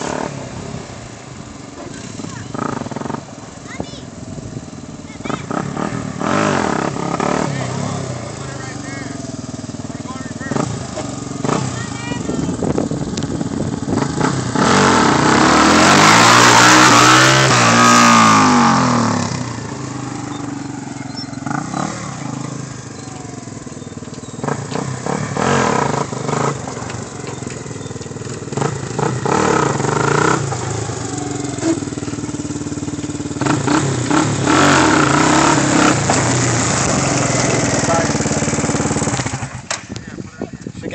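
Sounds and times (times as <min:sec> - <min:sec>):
quad bike engine revving: 0:00.0 - 0:01.0, 0:01.7 - 0:40.9.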